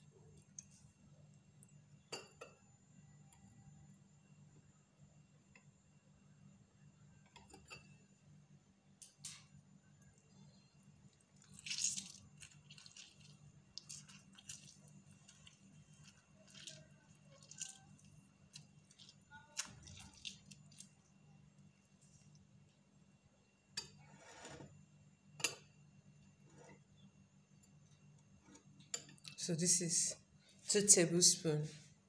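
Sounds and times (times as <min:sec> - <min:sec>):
low steady hum: 0:00.0 - 0:32.0
lemon squelching and dripping: 0:11.1 - 0:21.2.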